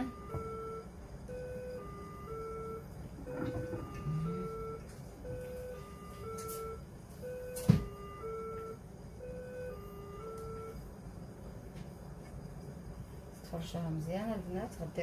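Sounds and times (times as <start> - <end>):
three-note electronic tune: 0.0 - 10.8.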